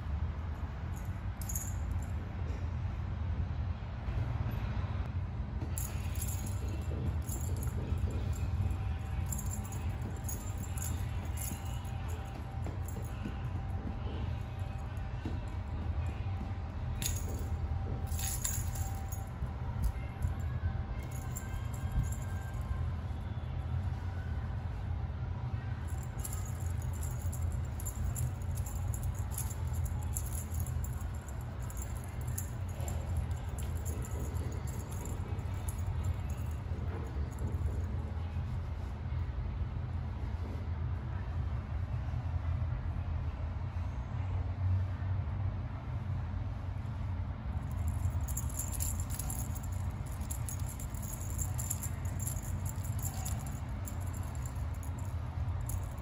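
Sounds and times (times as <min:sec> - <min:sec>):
steady low hum: 0:00.0 - 0:43.4, 0:46.0 - 0:56.0
metal chain rattling: 0:00.9 - 0:02.1, 0:05.8 - 0:15.8, 0:16.9 - 0:20.4, 0:21.0 - 0:22.8, 0:25.8 - 0:37.9, 0:47.6 - 0:56.0.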